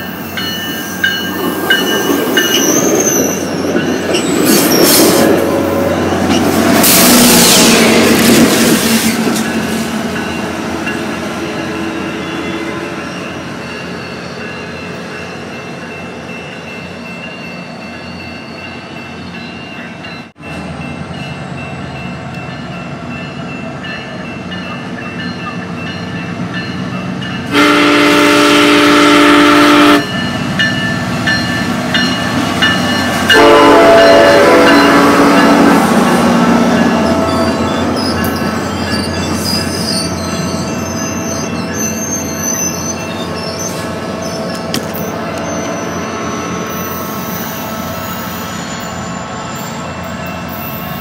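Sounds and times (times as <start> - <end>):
diesel locomotive passing: 0.0 - 51.0
low train rumble: 0.0 - 51.0
multi-note train horn: 27.5 - 30.1, 33.3 - 36.1.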